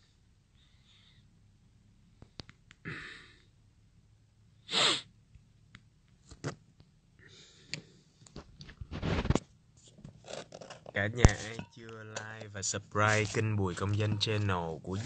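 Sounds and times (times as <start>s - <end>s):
sharp burst of breath: 4.7s - 5.0s.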